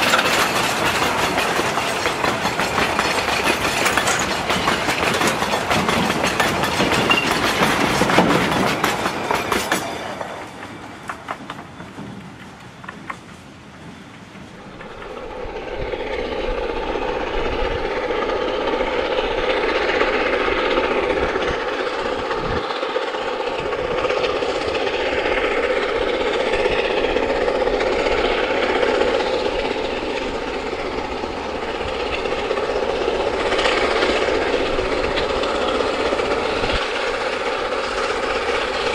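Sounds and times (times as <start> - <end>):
wagon wheels clicking over rail joints: 0.0 - 13.4
distant steam locomotive running: 0.0 - 38.9.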